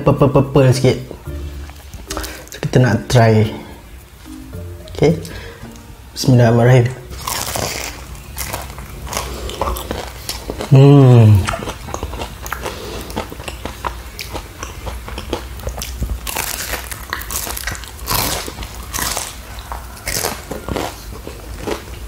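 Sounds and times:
chewing crunchy pastry: 0:07.1 - 0:22.0.

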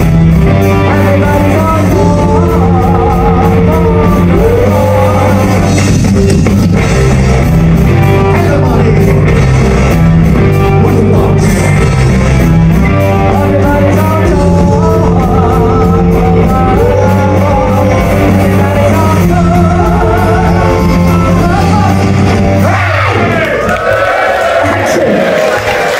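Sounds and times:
electric guitars: 0:00.0 - 0:23.9
bass guitar: 0:00.0 - 0:25.9
drums: 0:00.0 - 0:25.9
person singing: 0:00.5 - 0:06.4, 0:08.0 - 0:12.2, 0:12.9 - 0:22.8.

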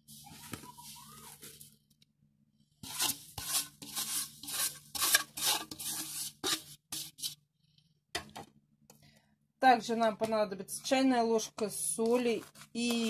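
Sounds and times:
sugar sliding into a bowl: 0:02.8 - 0:07.4.

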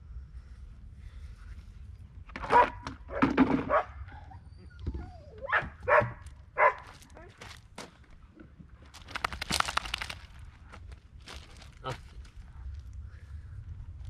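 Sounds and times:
dog barking: 0:02.4 - 0:02.8, 0:03.7 - 0:04.0, 0:05.4 - 0:06.9.

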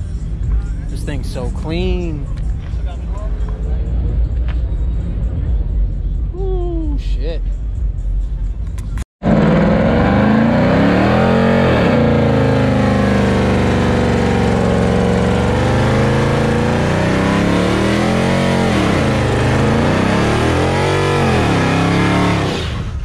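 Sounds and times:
car engine revving: 0:09.2 - 0:23.0.

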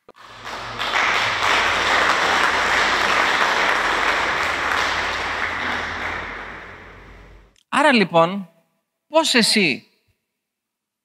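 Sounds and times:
people clapping: 0:00.0 - 0:07.5.

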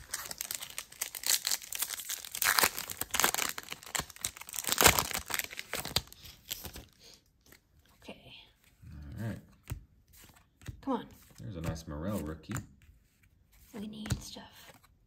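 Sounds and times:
foil wrapper crinkling and tearing: 0:00.0 - 0:07.0
cards rustling: 0:00.0 - 0:08.0, 0:08.6 - 0:15.0.

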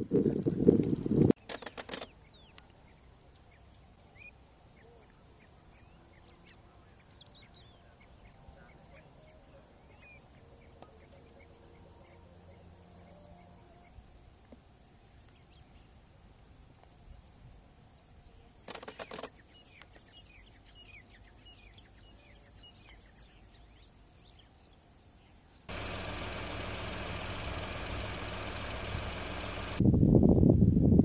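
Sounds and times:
wind noise on microphone: 0:00.0 - 0:01.4, 0:29.8 - 0:31.0.

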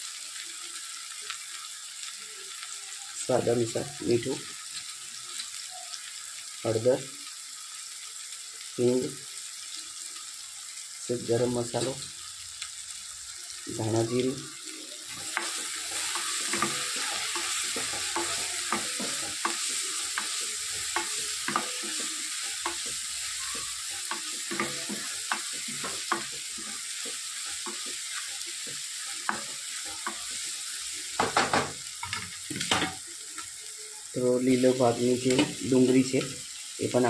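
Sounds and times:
food sizzling in oil: 0:00.0 - 0:37.0
spoon clacking and scraping: 0:15.1 - 0:30.6.

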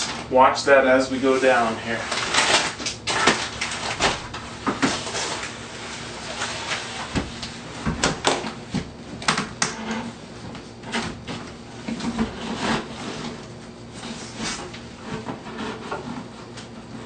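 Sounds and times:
shower base knocking and scraping: 0:14.0 - 0:16.7.

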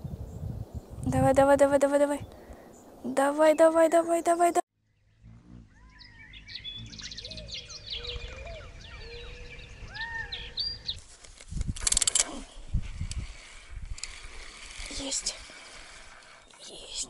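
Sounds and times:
birds singing: 0:02.1 - 0:11.1, 0:14.9 - 0:17.0
fishing reel rattling: 0:11.7 - 0:16.6.

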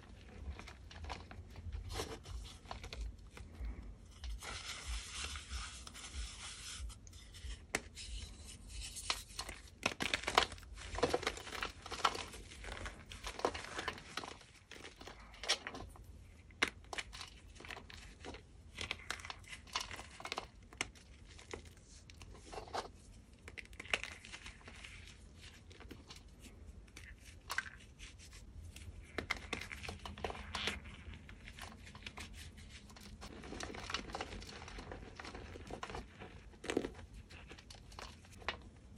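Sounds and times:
soft powdery rubbing: 0:00.0 - 0:09.4
chalk crunching and crackling: 0:00.0 - 0:38.9.

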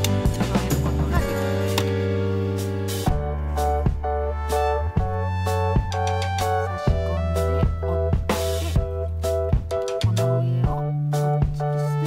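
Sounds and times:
instrumental music with beat: 0:00.0 - 0:12.0.

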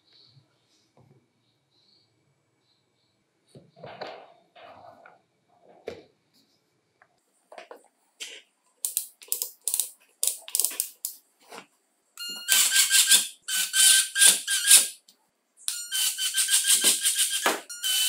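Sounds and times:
sharp mechanical clicks: 0:08.8 - 0:11.2
impact driver whining and rattling: 0:16.0 - 0:18.0.

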